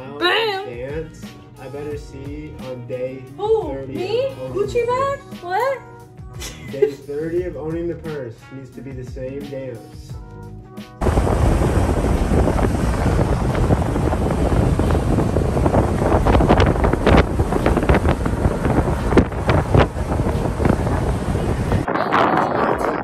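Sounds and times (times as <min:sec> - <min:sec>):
wind buffeting microphone: 0:11.0 - 0:23.0.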